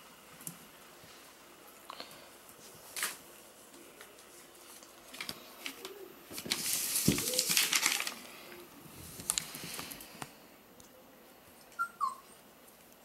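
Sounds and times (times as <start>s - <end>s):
rustling and scratching: 2.1s - 10.4s.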